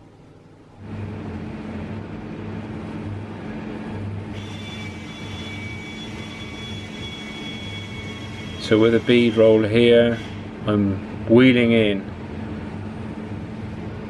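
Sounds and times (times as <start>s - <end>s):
high steady whine: 0.0s - 14.0s
electric motor pulsing hum: 0.8s - 14.0s.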